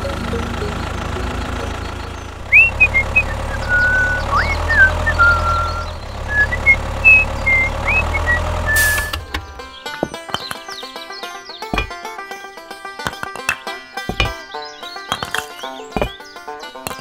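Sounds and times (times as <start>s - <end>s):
tractor engine idling: 0.0s - 17.0s
high whistled chirps: 0.2s - 9.3s.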